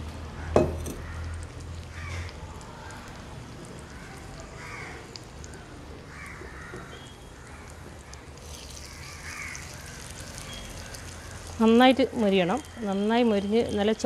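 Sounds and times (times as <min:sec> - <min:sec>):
bread frying in oil sizzling: 0:00.0 - 0:14.0
crows cawing: 0:00.4 - 0:02.3, 0:03.9 - 0:07.8, 0:08.8 - 0:11.6.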